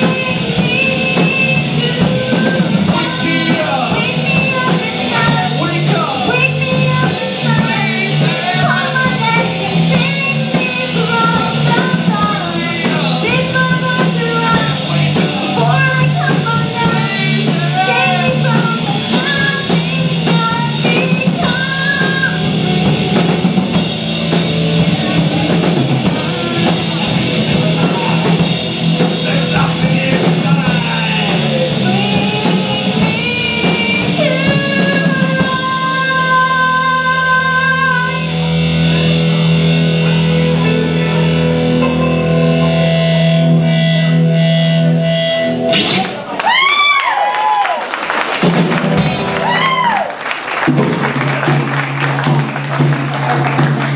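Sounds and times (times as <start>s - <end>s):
woman singing: 0.0s - 22.9s, 29.0s - 38.5s
rock band playing: 0.0s - 53.9s.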